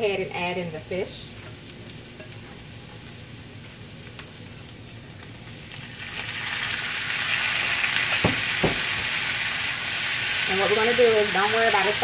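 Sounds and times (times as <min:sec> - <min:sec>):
cabbage sizzling in a skillet: 0:00.0 - 0:12.0.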